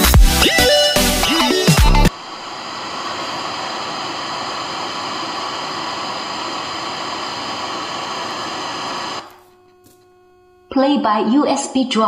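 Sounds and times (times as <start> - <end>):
radio static hiss: 2.1 - 10.7.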